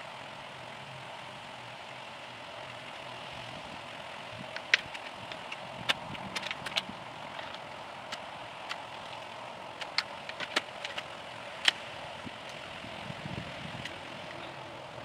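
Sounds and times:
outdoor background hum: 0.0 - 15.0
plastic trays clicking and tapping: 9.8 - 11.1.

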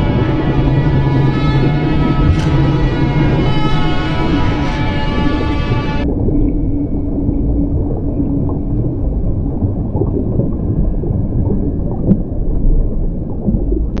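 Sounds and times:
faint high whine: 0.0 - 8.3
deep underwater rumble: 0.0 - 14.0.

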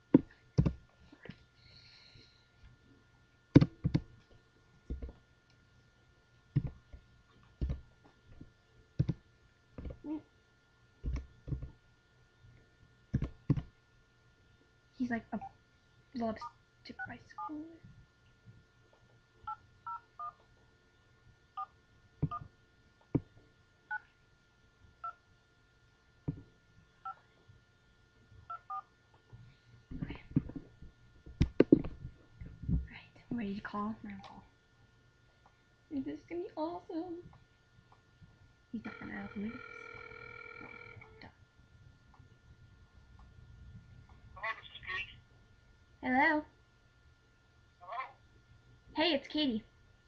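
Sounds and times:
faint high whine: 38.6 - 48.0.

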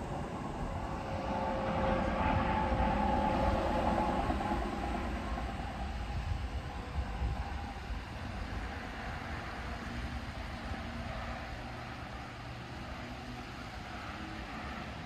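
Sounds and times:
outdoor rumble and hiss: 0.0 - 15.0.

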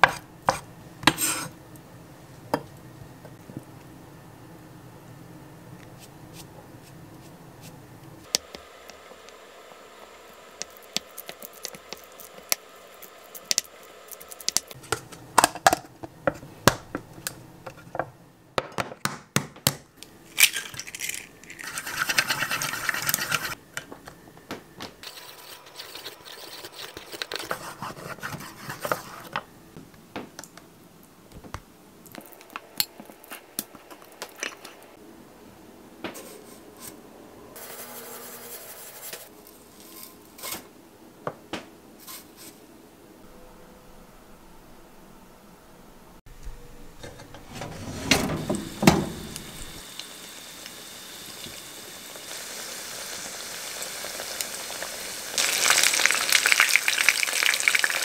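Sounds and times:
utensils scraping: 25.0 - 29.3, 47.0 - 49.8.

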